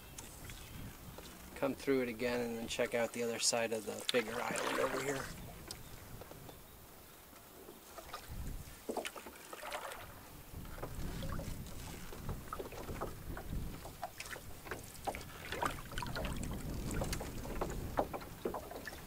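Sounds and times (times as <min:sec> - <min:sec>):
water splashing off paddle: 0:03.8 - 0:05.4, 0:08.0 - 0:19.0.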